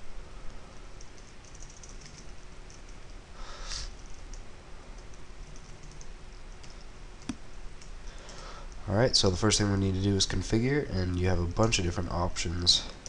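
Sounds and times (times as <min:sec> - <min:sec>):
short breath-like rush: 0:03.4 - 0:04.0.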